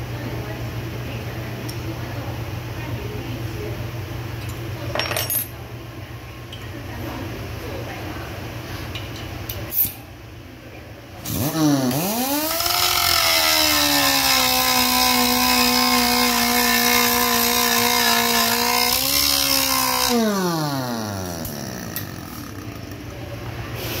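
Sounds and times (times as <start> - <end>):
air grinder whining: 11.2 - 23.2.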